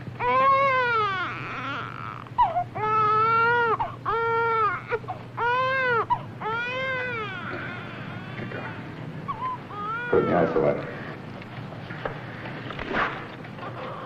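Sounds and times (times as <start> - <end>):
newborn baby crying: 0.2 - 11.1.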